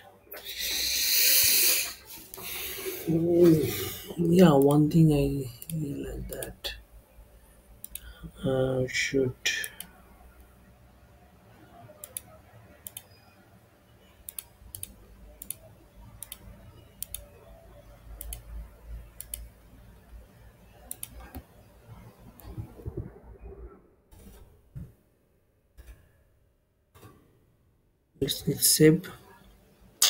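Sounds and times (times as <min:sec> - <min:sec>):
low background hum: 0:00.0 - 0:30.0
computer mouse clicking: 0:07.8 - 0:08.1, 0:12.0 - 0:13.2, 0:14.2 - 0:16.4, 0:17.0 - 0:17.3, 0:18.2 - 0:18.5, 0:19.1 - 0:19.6, 0:20.8 - 0:21.5.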